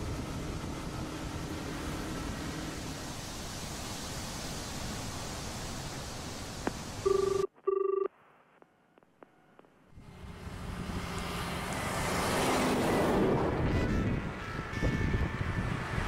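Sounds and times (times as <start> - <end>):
bus passing: 0.0 - 5.4, 10.0 - 16.0
road noise: 0.0 - 7.5, 9.0 - 16.0
telephone ringing: 7.0 - 8.1.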